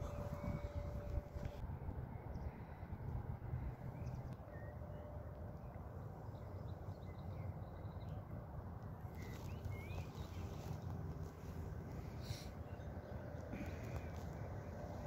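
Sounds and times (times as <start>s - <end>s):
wind noise on microphone: 0.0s - 4.2s.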